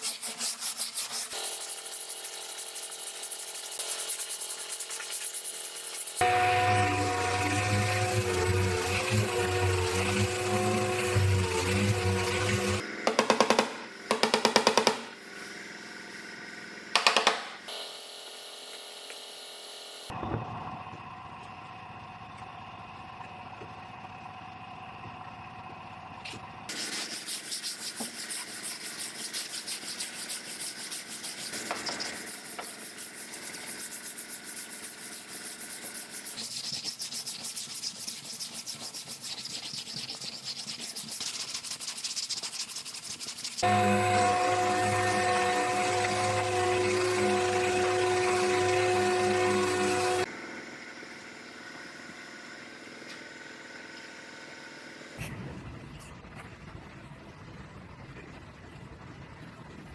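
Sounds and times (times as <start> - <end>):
sandpaper scraping: 0.0 - 12.8, 26.7 - 50.3.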